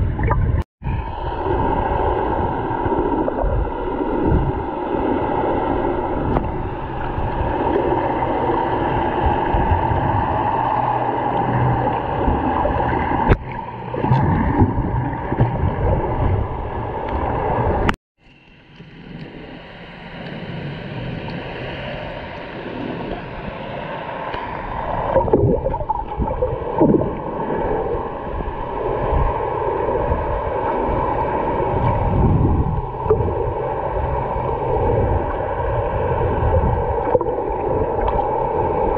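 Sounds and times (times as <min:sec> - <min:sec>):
underwater water gurgle: 0:00.0 - 0:38.9
steady drone: 0:00.8 - 0:25.9.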